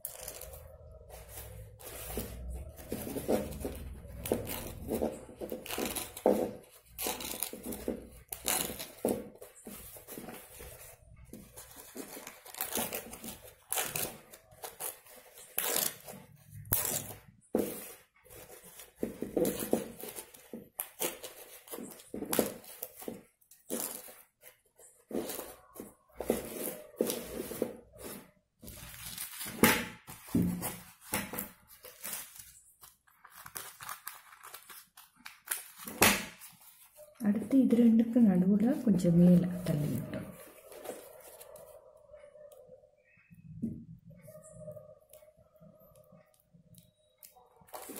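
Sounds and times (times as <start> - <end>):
corn husk tearing and crinkling: 5.5 - 9.1, 11.6 - 17.3, 30.6 - 36.6.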